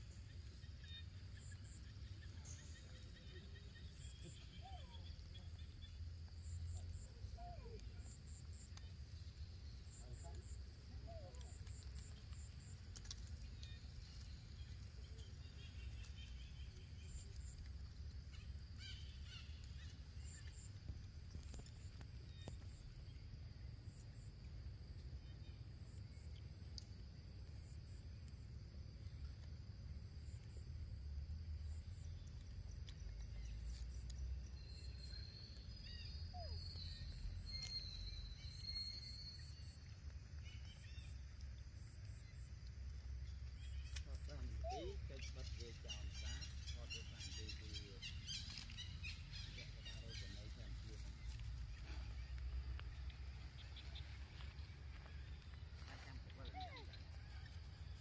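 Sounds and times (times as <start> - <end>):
insect drone: 0.0 - 58.0
soft chirps: 0.0 - 58.0
faint high ticks: 26.2 - 27.0.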